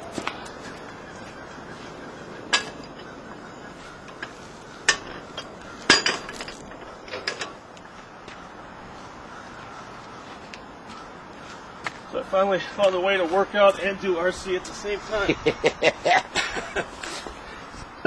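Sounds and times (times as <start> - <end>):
iron weight plates clanking: 4.2 - 7.6.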